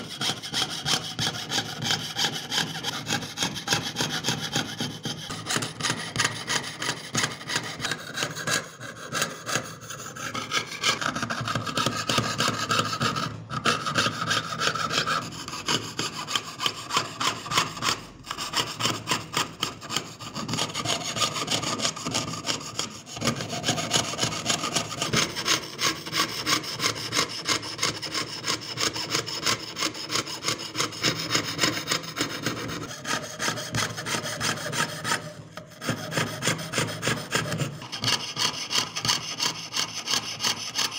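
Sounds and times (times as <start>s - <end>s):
saw blade rasping through metal: 0.0s - 40.9s.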